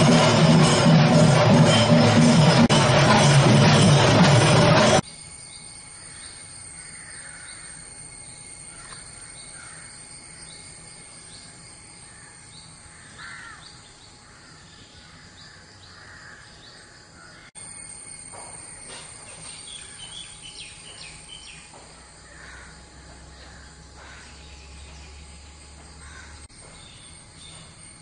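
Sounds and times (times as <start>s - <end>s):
loud music: 0.0s - 5.0s
low harsh bird calls: 5.6s - 17.5s, 19.1s - 27.8s.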